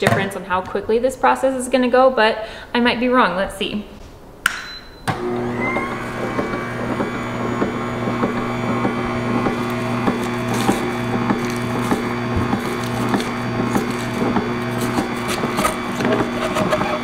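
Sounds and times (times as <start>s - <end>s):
juicer motor humming: 5.1s - 17.0s.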